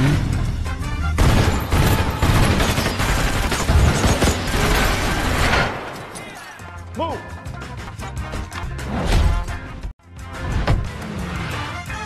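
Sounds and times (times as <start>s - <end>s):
rapid gunfire: 1.2s - 5.9s.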